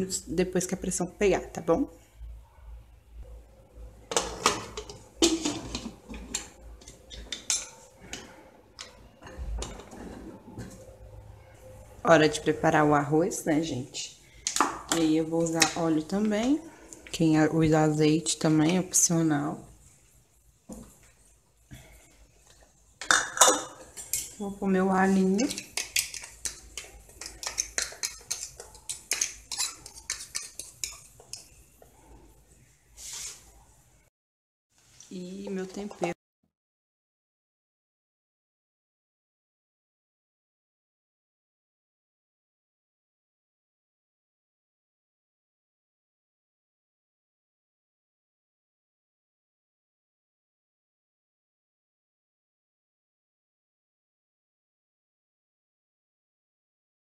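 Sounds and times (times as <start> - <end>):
metal lid clanking and scraping: 4.1 - 7.8
fork tapping and scraping plastic tub: 25.3 - 31.5.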